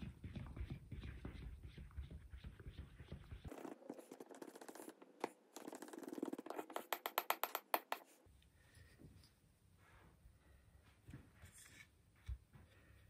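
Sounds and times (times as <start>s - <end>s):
stick stirring thick paint in a tin: 0.0s - 7.4s.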